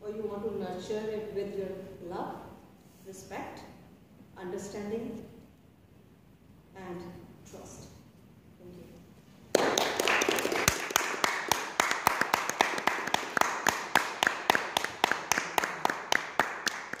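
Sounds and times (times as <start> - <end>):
sharp close hand claps: 9.5 - 17.0
small audience applauding: 9.5 - 17.0.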